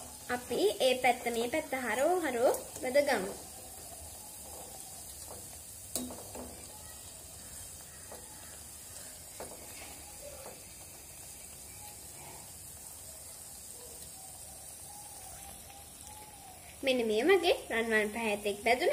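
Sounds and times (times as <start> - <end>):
food sizzling in hot oil: 0.0 - 18.9
metal spatula clicking on pan: 5.9 - 6.6.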